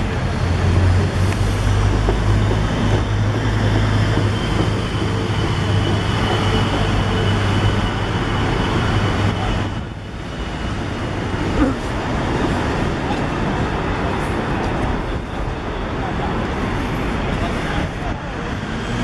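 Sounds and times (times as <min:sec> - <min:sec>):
city street traffic: 0:00.0 - 0:19.0.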